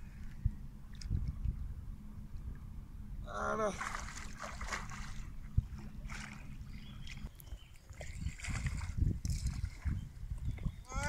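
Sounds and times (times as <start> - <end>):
low wind rumble on microphone: 0.0 - 11.0
water splashing and sloshing: 0.0 - 11.0.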